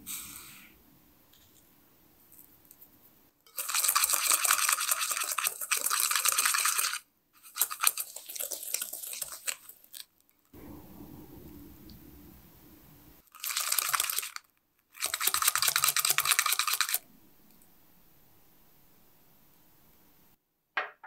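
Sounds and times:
whisk scraping a bowl: 3.4 - 9.7, 15.0 - 17.0.

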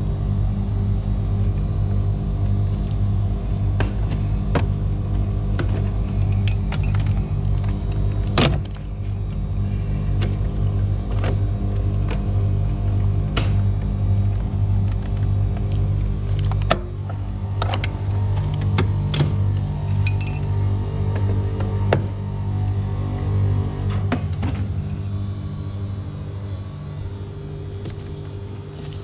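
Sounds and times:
music with pulsing bass: 16.9 - 26.4.

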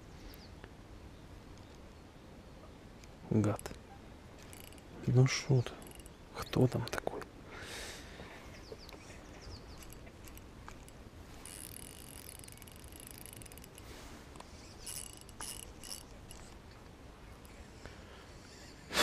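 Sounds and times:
fishing reel whirring: 4.4 - 5.0, 5.6 - 6.2, 9.7 - 16.7
bird chirps: 8.4 - 10.1.

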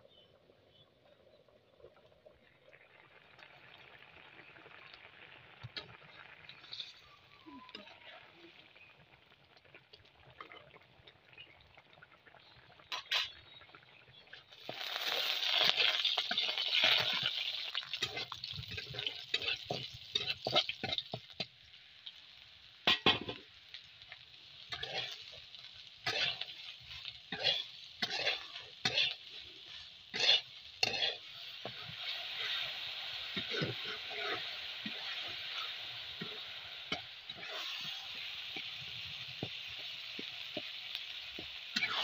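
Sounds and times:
food sizzling in hot oil: 1.4 - 42.0
metal spatula scraping pan: 18.0 - 21.4, 24.7 - 25.4, 26.0 - 40.7.

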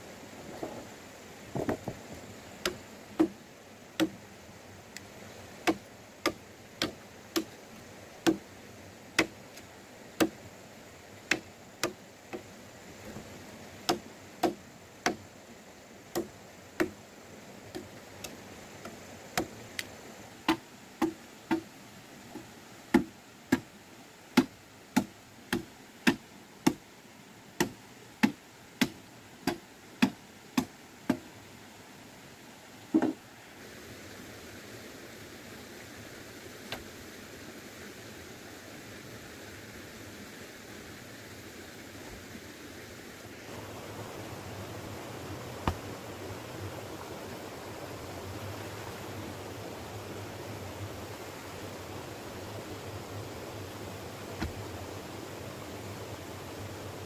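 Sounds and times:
machete chopping into wood: 5.7 - 7.5, 23.0 - 23.6, 45.6 - 45.8, 54.4 - 54.6.

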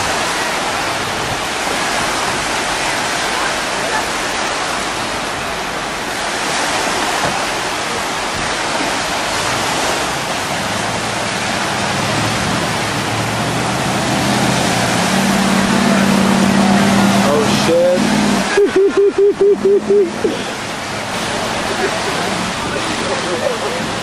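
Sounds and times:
churned water rushing: 0.0 - 24.0
truck engine droning: 9.5 - 24.0.

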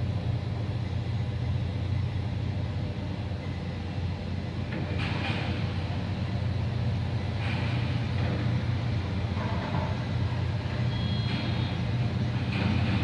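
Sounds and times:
heavy diesel machinery rumble: 0.0 - 13.0
brief high beep: 10.9 - 11.3.

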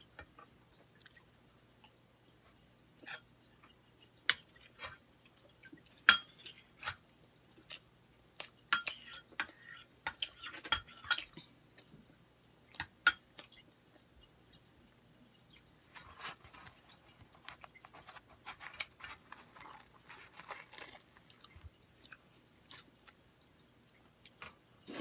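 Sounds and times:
spoon clinking against plate: 8.7 - 11.3
person chewing: 16.2 - 23.2.

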